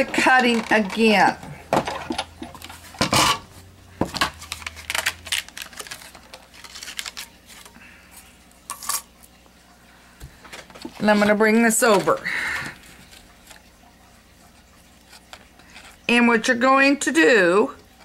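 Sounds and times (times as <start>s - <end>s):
paper rustle: 4.0s - 8.3s.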